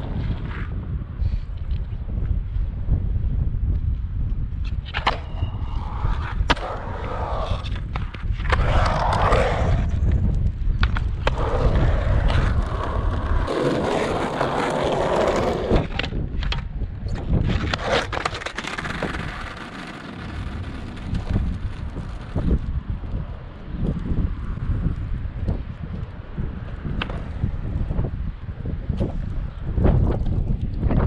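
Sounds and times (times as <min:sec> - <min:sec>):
skateboard wheels rolling on concrete: 0:00.0 - 0:31.0
wind buffeting microphone: 0:00.0 - 0:31.0
skateboard clacking on concrete: 0:04.8 - 0:10.0, 0:10.8 - 0:22.7, 0:26.6 - 0:27.4.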